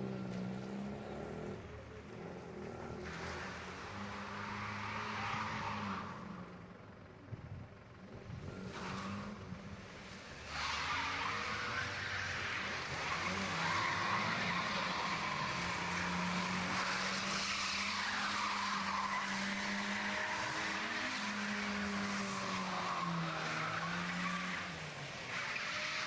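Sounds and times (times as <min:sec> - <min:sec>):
car engine at high revs: 0:00.0 - 0:26.0
tyres squealing on tarmac: 0:02.2 - 0:07.0, 0:10.4 - 0:26.0.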